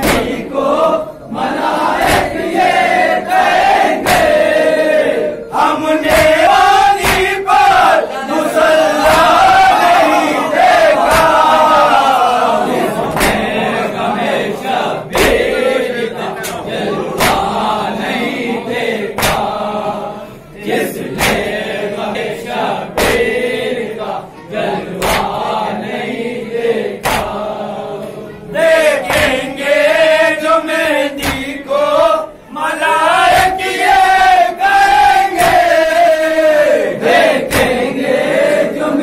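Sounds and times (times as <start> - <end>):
hand strikes of chest-beating: 0.0 - 0.5, 1.7 - 5.1, 6.0 - 8.0, 8.9 - 12.2, 13.0 - 13.7, 15.1 - 15.7, 16.4 - 17.8, 19.1 - 19.8, 21.0 - 23.6, 24.9 - 25.6, 27.0 - 27.7, 29.0 - 29.7, 31.1 - 31.8, 33.2 - 36.4, 37.2 - 37.9
lead voice singing: 0.0 - 39.0
men chanting together: 0.0 - 39.0.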